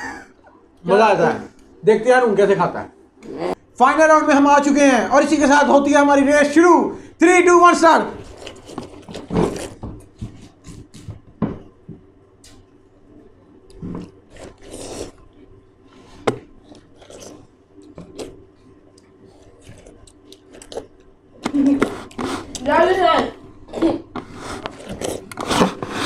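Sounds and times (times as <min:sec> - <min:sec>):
people biting and slurping watermelon: 0:08.2 - 0:11.1, 0:13.7 - 0:15.5, 0:16.5 - 0:21.0, 0:23.7 - 0:26.0.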